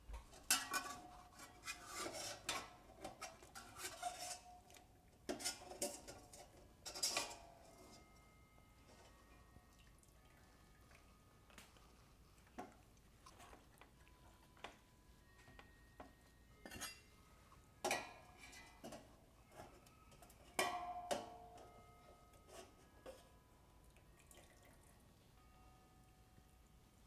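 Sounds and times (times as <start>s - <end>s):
metal utensils clinking on pot: 0.2s - 9.4s, 16.6s - 17.2s, 17.8s - 23.4s
pot clanking and ringing: 0.5s - 4.6s, 5.3s - 9.7s, 14.4s - 23.5s.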